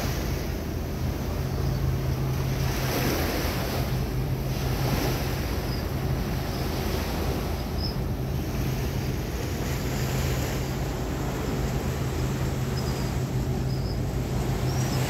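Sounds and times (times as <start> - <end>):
boat engine hum: 0.0 - 15.0
waves lapping: 0.0 - 15.0.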